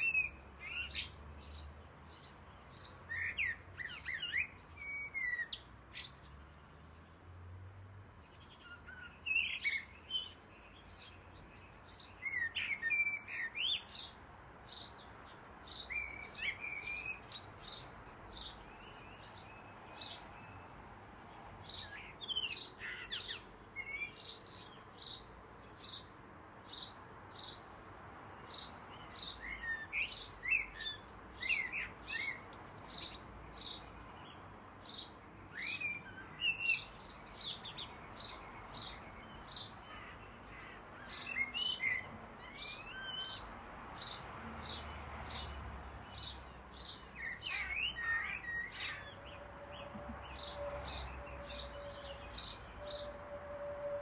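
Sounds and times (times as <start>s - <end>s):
high bird chirps: 47.0s - 54.0s.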